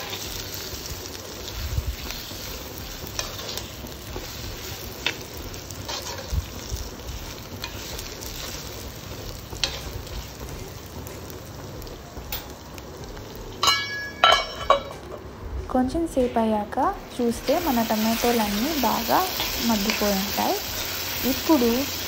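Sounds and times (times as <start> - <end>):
food sizzling in oil: 0.0 - 14.8, 17.0 - 22.0
metal lid clanking: 13.6 - 15.0.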